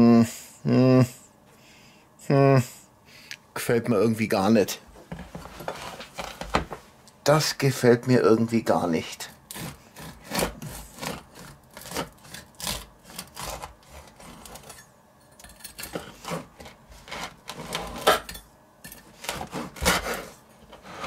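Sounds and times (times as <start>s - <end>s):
bread knife sawing through crust: 9.2s - 14.8s, 15.9s - 18.3s, 19.1s - 21.0s.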